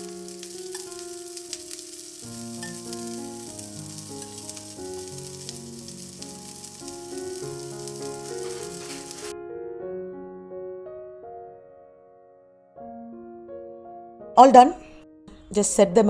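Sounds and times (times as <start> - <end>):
food sizzling in oil: 0.0 - 9.3
soft piano music: 0.0 - 16.0.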